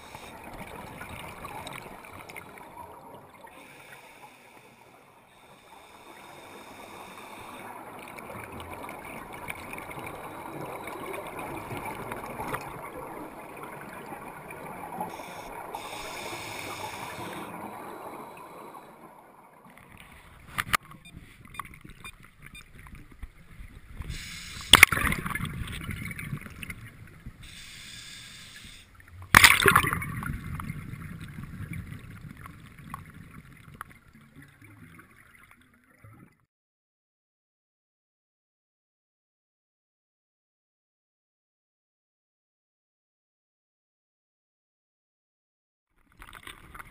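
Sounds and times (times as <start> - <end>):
underwater bubbles gurgling: 0.0 - 36.4.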